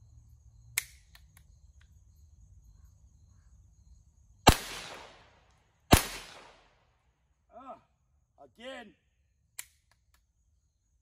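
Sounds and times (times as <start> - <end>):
pistol handling clicks: 0.8 - 1.9, 9.5 - 10.3
pistol shot with echo: 4.5 - 6.7.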